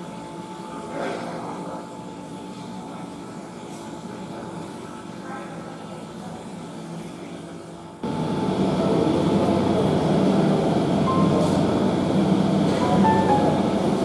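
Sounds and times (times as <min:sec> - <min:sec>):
rumbling room noise: 0:08.0 - 0:14.0.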